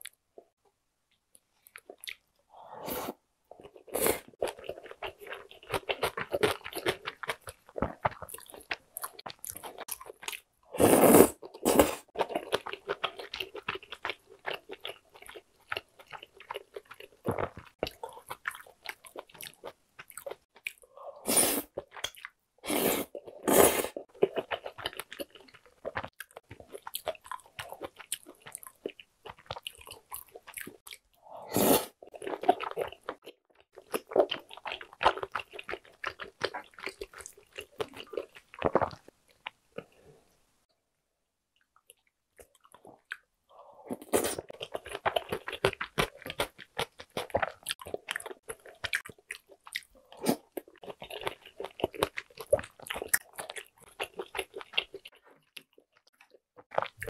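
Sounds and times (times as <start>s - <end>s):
chewing and biting food: 3.6s - 10.5s, 11.5s - 20.9s, 24.0s - 31.1s, 32.1s - 39.9s, 43.9s - 57.0s.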